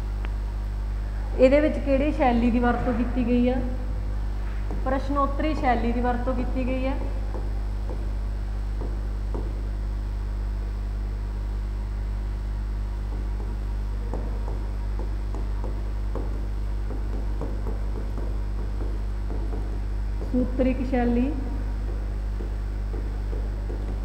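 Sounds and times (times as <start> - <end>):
electrical mains hum: 0.0 - 24.0.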